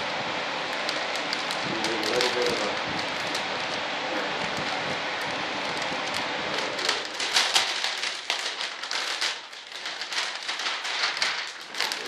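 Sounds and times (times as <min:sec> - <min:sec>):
plastic film crinkling: 0:00.4 - 0:12.0.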